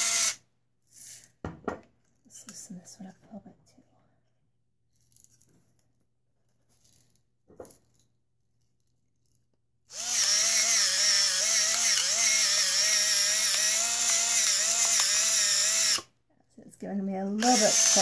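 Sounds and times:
electric pepper grinder whining: 0.0 - 0.4, 9.9 - 16.1, 17.4 - 18.0.

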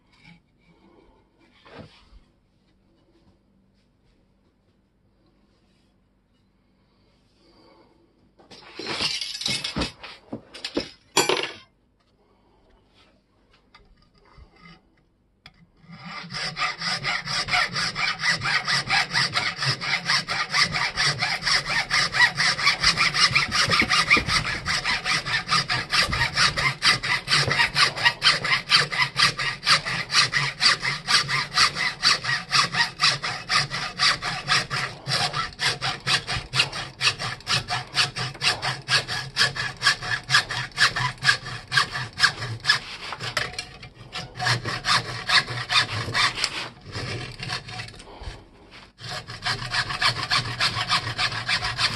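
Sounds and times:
hacksaw cutting metal: 15.8 - 48.0, 49.0 - 51.9.

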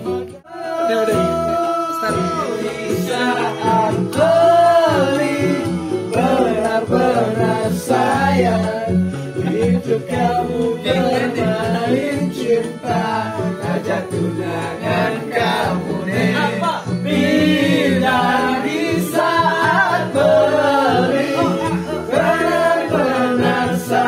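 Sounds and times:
low musical accompaniment: 0.0 - 24.0
men singing together: 0.0 - 24.0.

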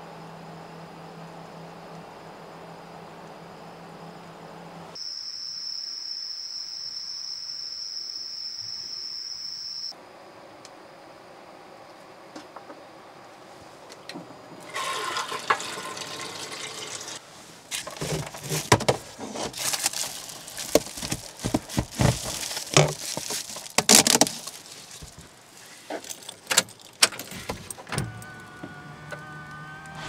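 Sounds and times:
water running from faucet: 14.7 - 17.2
plastic duct clattering and rustling: 17.7 - 25.3.

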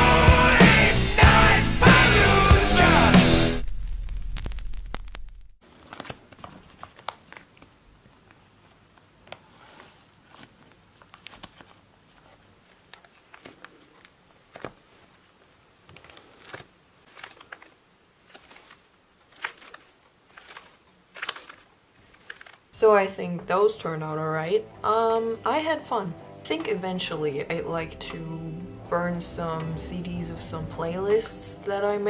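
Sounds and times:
plastic sleeves crinkling: 3.6 - 22.8.

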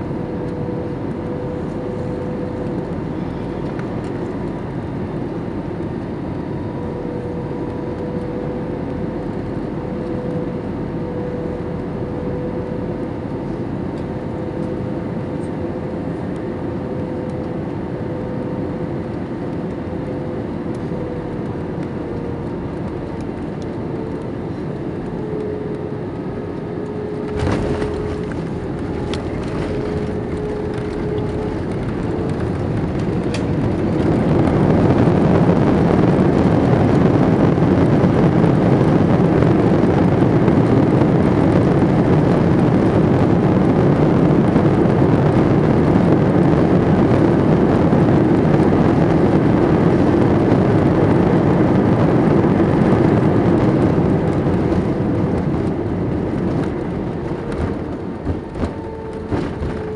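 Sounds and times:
aircraft engine hum: 0.0 - 59.9
engines roaring in reverse thrust: 0.0 - 59.9
wheels touching down thump: 27.2 - 33.6.

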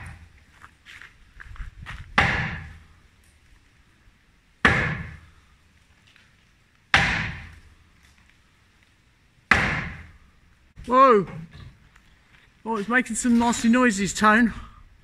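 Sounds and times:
sledgehammer blows: 2.0 - 2.9, 4.6 - 5.4, 6.9 - 7.7, 9.5 - 10.2.

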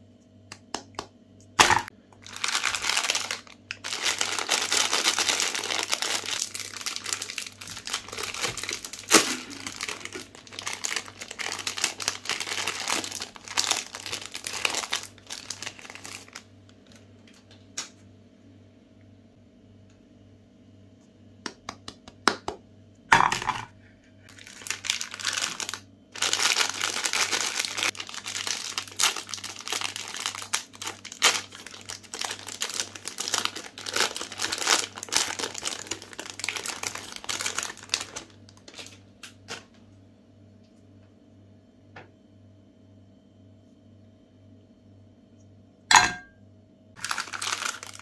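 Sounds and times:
plastic wrapper crinkling: 1.6 - 17.6, 24.3 - 39.7, 47.0 - 48.0.

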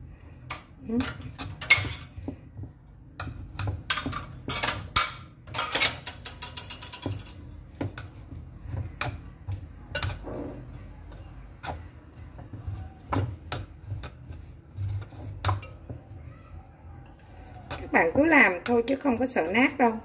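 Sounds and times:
chopsticks scraping wooden mortar: 6.2 - 16.3, 17.2 - 19.4.

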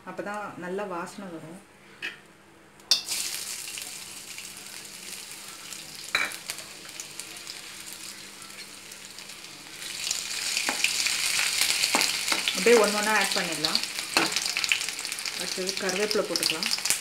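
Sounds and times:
ginger sizzling in hot oil: 2.9 - 17.0.

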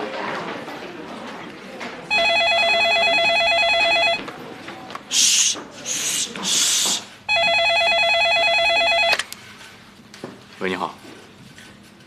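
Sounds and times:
desk telephone ringing: 2.1 - 4.2, 7.3 - 9.2
short hissing sounds: 5.1 - 7.2.

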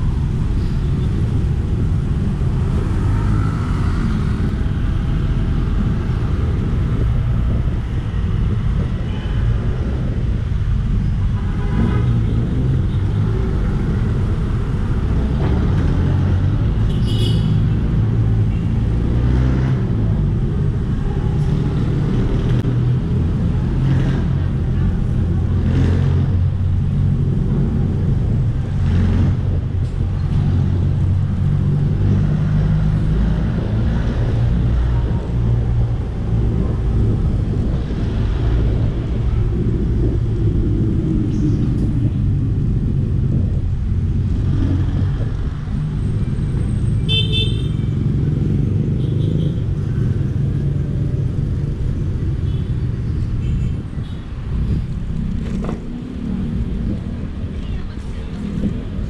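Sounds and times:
street traffic: 0.0 - 59.0
wind and road noise rumble: 0.0 - 59.0
vehicle horn honking: 47.1 - 47.8.

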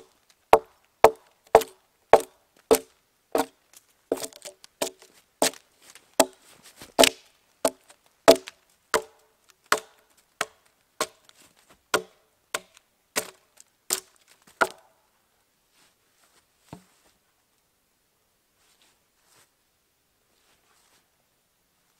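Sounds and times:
hatchet chopping log: 0.0 - 5.6, 6.2 - 6.4, 7.0 - 11.3, 11.9 - 14.9.

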